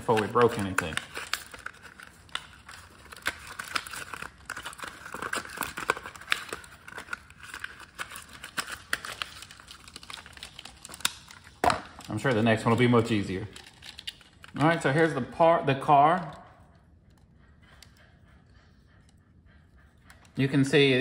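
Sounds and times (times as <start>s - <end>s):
packaging crinkling: 0.0s - 15.1s.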